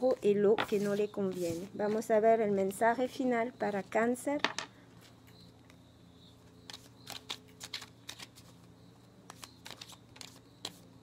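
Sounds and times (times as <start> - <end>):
cards being shuffled: 6.7 - 8.7, 9.3 - 10.8.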